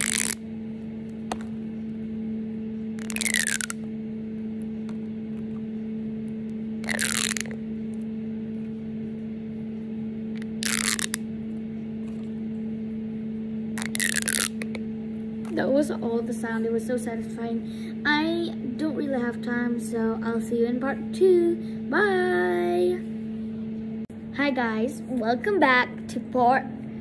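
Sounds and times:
plastic pop tube rasping: 0:00.0 - 0:00.4, 0:03.0 - 0:03.8, 0:06.8 - 0:07.6, 0:10.4 - 0:11.2, 0:13.8 - 0:14.8
steady low hum: 0:00.0 - 0:27.0.

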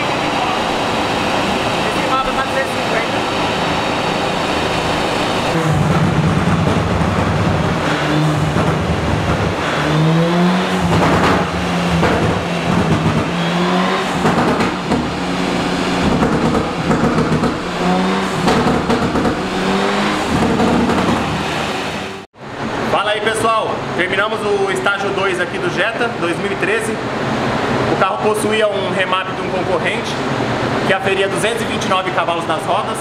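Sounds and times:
car engine revving: 0:00.0 - 0:22.3
exhaust cracks: 0:00.0 - 0:22.3.

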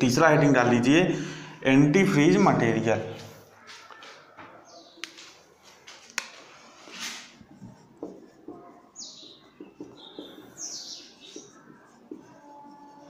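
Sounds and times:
marker scratching on whiteboard: 0:03.1 - 0:13.0
high marker squeaks: 0:06.5 - 0:13.0.

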